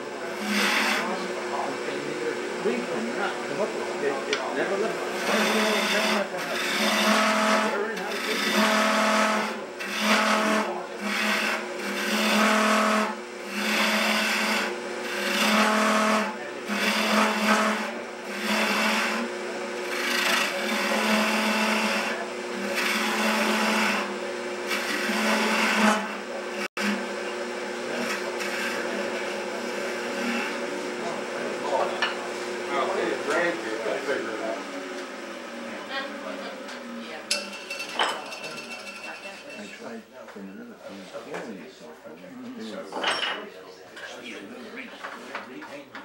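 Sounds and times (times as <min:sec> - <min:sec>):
gouge scraping spinning wood: 0:00.0 - 0:36.6, 0:37.2 - 0:41.2
wood lathe motor hum: 0:00.0 - 0:40.0.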